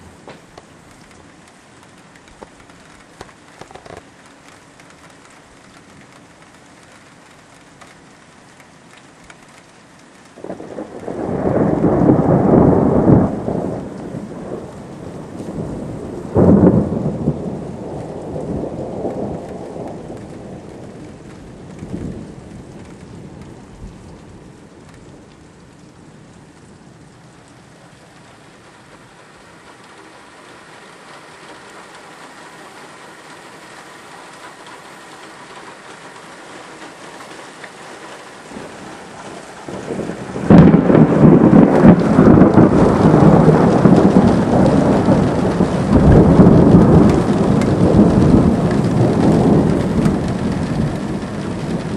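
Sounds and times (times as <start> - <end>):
thunder rumbling: 0.0 - 4.0, 10.4 - 51.9
steady rain falling: 0.0 - 51.9
sharp thunderclap: 10.4 - 23.4, 38.5 - 51.9.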